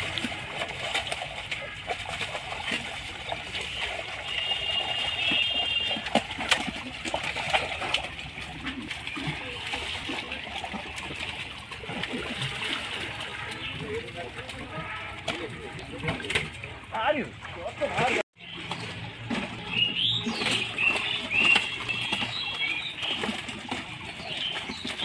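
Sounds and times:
water splashing and sloshing: 0.0s - 25.0s.

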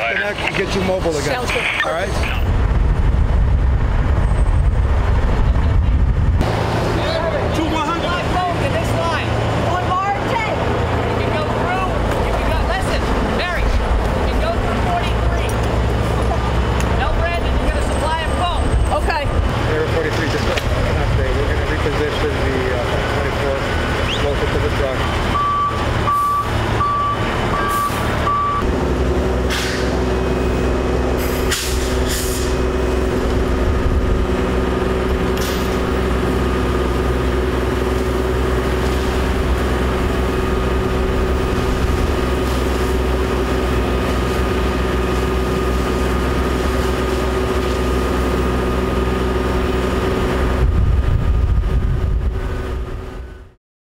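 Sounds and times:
heavy truck engine running: 0.0s - 53.6s
truck backup beeper: 25.2s - 28.8s
short air hisses: 29.5s - 29.9s, 31.2s - 32.6s.

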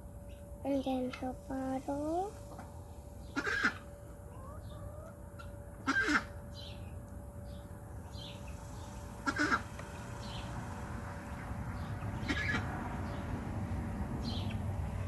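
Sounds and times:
faint steady hum: 0.0s - 12.2s
chickens squawking: 3.2s - 6.4s, 9.2s - 9.7s, 12.2s - 12.7s.

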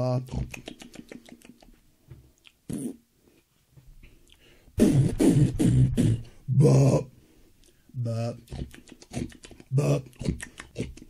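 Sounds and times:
man making warbling mouth noises: 0.0s - 1.8s, 2.4s - 3.0s, 4.8s - 7.1s, 7.9s - 11.0s.

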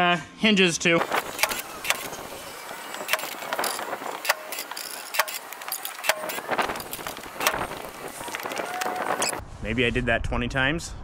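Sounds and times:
plow winch whirring: 1.0s - 9.4s
sharp clicks and knocks: 1.1s - 9.4s.

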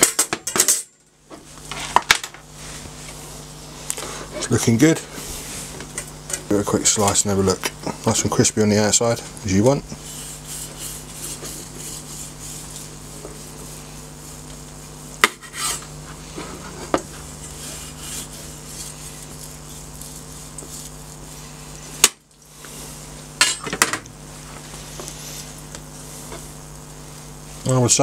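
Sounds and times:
knife slicing and scraping meat: 10.0s - 14.2s, 15.2s - 21.9s.

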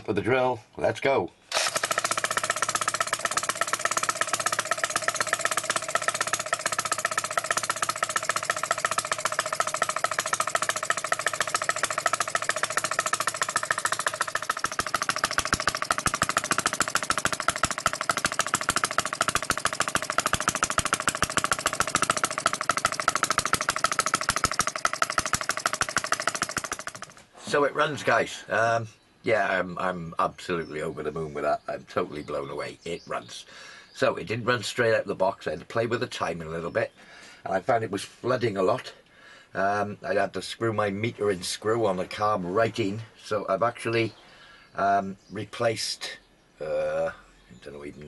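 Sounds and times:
model petrol engine running: 1.5s - 27.2s.

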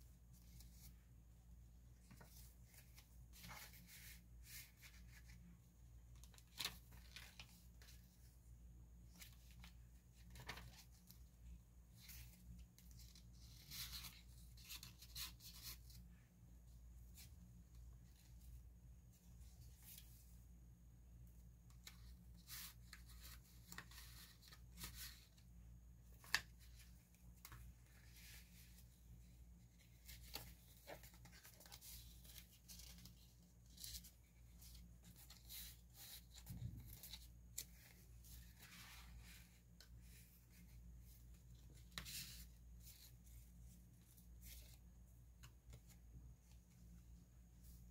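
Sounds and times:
paper rustling and clicking: 9.1s - 11.2s.

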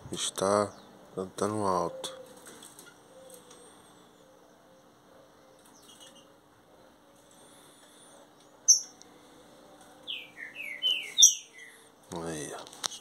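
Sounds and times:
songbirds chirping: 0.0s - 13.0s
descending whistled birdsong: 1.6s - 7.0s, 7.6s - 9.0s, 10.0s - 11.9s.

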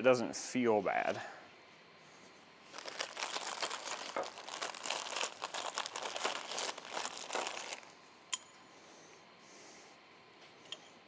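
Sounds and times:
crinkling handling noise: 2.6s - 8.0s.

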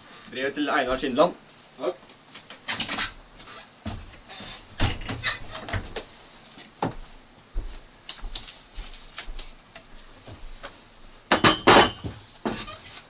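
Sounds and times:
knocks and bumps of handling: 10.2s - 13.0s.

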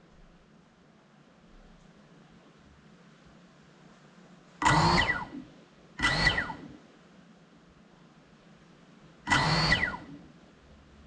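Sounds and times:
drone motors spinning up: 4.6s - 5.4s, 6.0s - 6.8s, 9.3s - 10.2s.

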